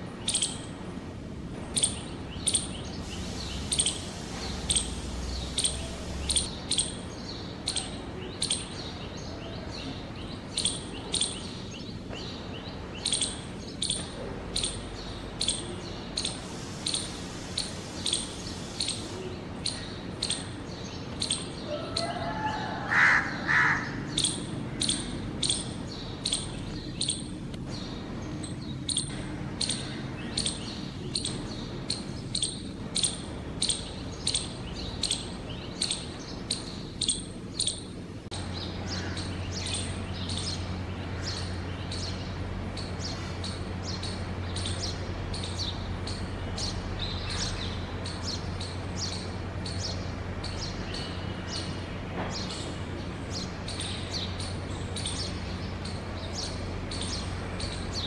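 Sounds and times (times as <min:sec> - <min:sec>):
bird chirping: 0:00.0 - 0:00.8, 0:01.6 - 0:58.0
harsh bird call: 0:16.2 - 0:25.7.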